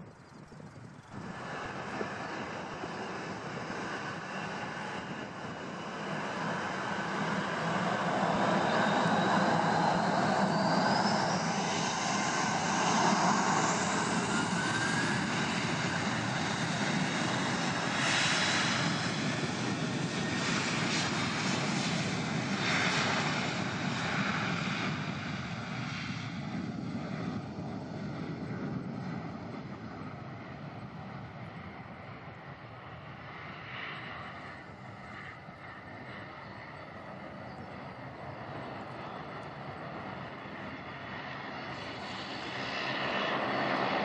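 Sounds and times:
jet engines spooling up: 0:00.1 - 0:32.1.

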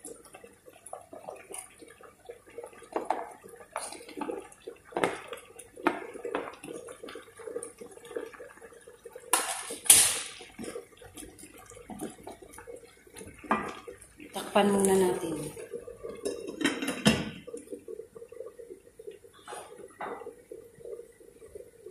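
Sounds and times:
wooden spoon stirring pot: 0:00.1 - 0:08.6, 0:10.5 - 0:21.9.

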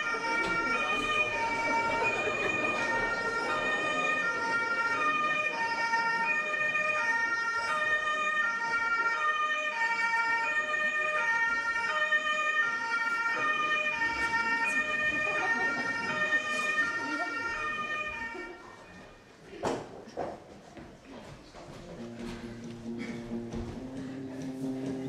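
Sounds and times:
bagpipe melody over drone: 0:00.0 - 0:18.6.

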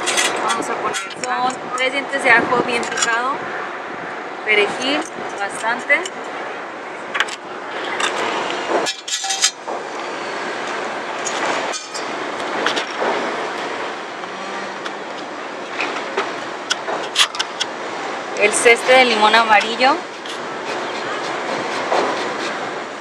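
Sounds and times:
outdoor rushing noise: 0:06.2 - 0:23.0.

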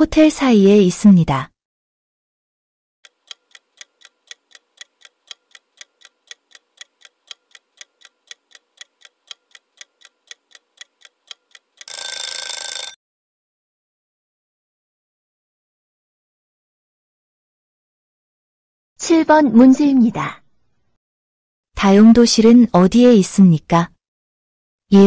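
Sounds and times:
clock ticking: 0:03.0 - 0:13.0.

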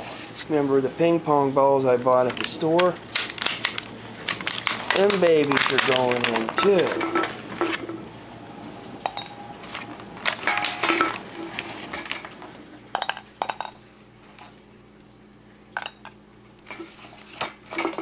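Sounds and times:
plastic balls clicking and knocking: 0:02.1 - 0:07.0.

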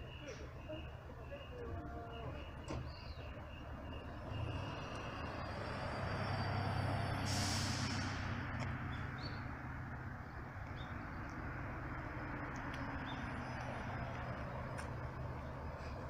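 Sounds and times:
bus diesel engine running: 0:00.0 - 0:16.0
air brakes hissing: 0:05.9 - 0:08.4.

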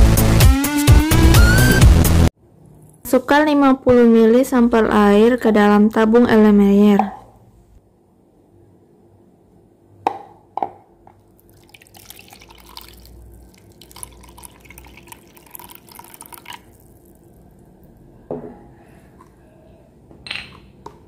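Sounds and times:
water pouring into container: 0:11.3 - 0:18.0.

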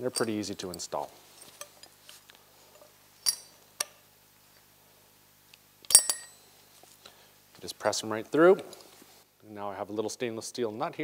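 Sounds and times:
metal screws and hub clinking: 0:00.0 - 0:02.0, 0:03.2 - 0:03.6, 0:05.9 - 0:06.4.

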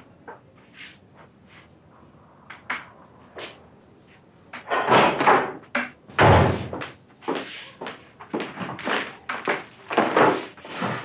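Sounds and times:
thudding and rustling: 0:06.1 - 0:07.0.

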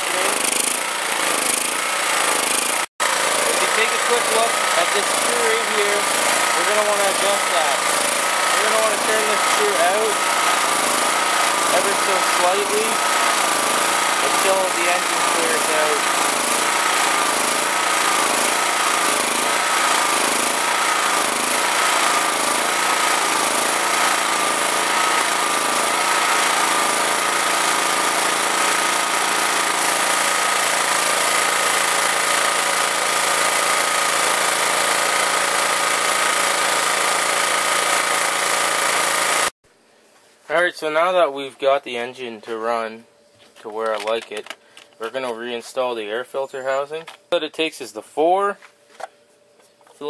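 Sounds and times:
generator engine running: 0:00.0 - 0:39.5.

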